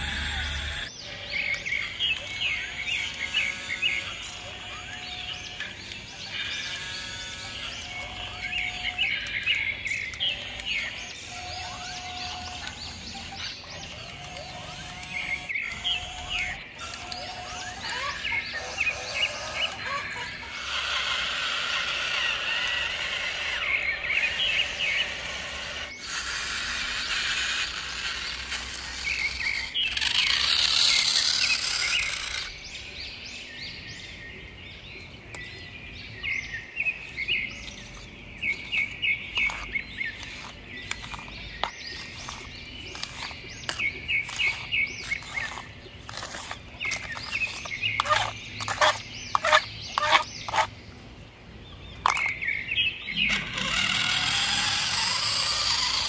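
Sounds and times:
small birds chirping: 0:00.0 - 0:56.0
sand scraping and pouring: 0:37.0 - 0:50.7.

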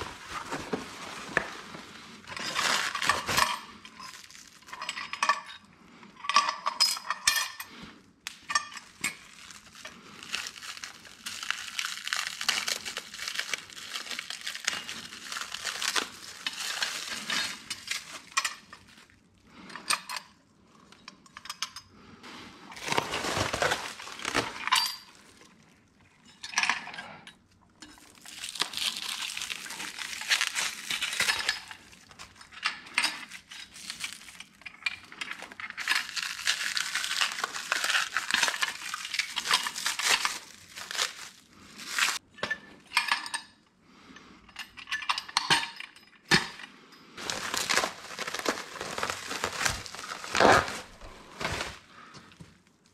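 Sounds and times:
plastic wrap crinkling: 0:00.0 - 0:04.8, 0:08.8 - 0:19.2, 0:22.7 - 0:26.0, 0:28.0 - 0:32.5, 0:33.2 - 0:42.2, 0:47.2 - 0:52.9.

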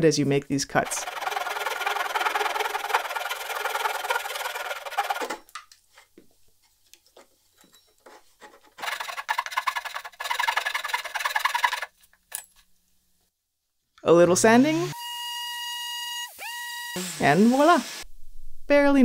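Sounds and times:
hand saw rasping through wood: 0:00.8 - 0:05.4, 0:08.8 - 0:11.9.

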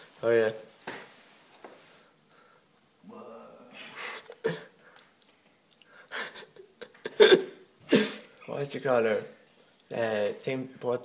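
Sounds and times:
person murmuring: 0:03.0 - 0:04.7.

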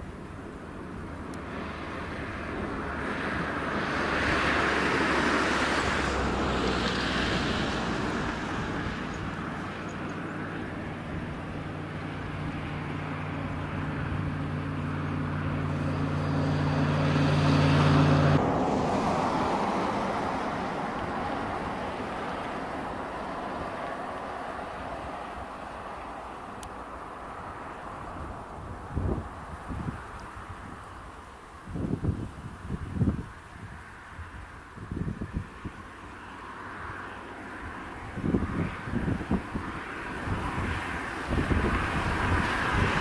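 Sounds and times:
jet engines at takeoff power: 0:00.1 - 0:30.9.

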